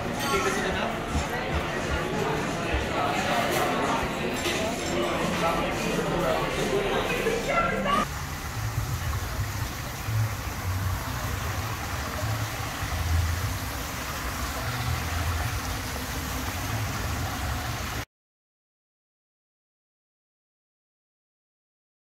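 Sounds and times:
fountain water hissing: 6.3s - 18.1s
low uneven rumble: 7.4s - 18.0s.

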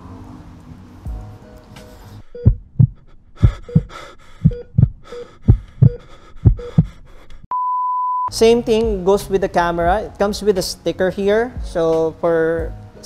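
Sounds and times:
heartbeat thumps: 2.4s - 7.1s
electronic monitor beep: 4.5s - 5.2s, 7.5s - 8.3s.

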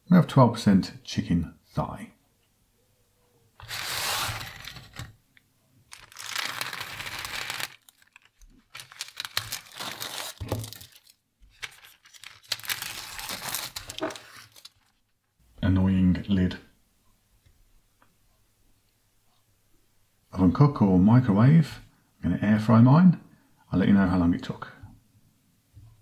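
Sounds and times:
packaging ripping: 3.6s - 5.1s, 5.9s - 15.1s
plastic film crinkling: 3.6s - 5.1s, 5.9s - 15.3s.

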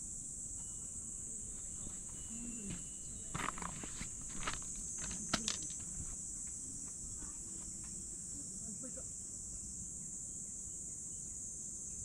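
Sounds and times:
insects chorus: 0.0s - 12.0s
clicks and light scuffs: 1.6s - 7.0s.

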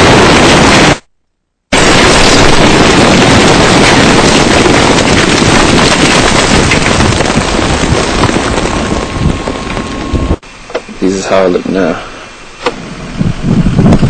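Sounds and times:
loud rush of explosion noise: 0.0s - 1.1s, 1.7s - 10.4s.

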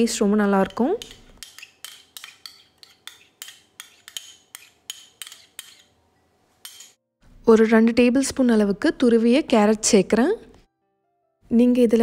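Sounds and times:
spoon clinking ceramic bowl: 0.6s - 5.9s.

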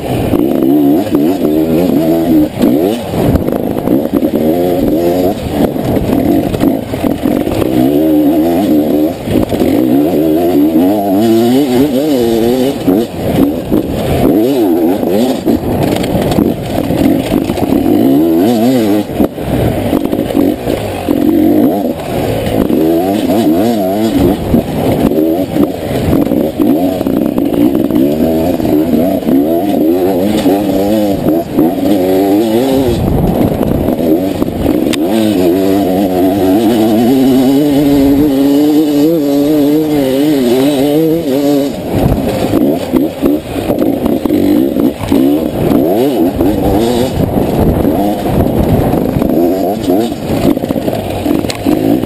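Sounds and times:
knocks and clatter from bike: 0.0s - 52.0s
motorcycle engine revving: 0.0s - 52.0s.

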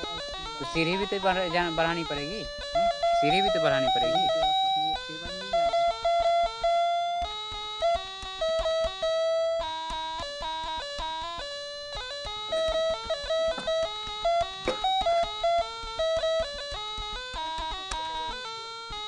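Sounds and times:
plucked guitar melody: 0.0s - 18.7s.

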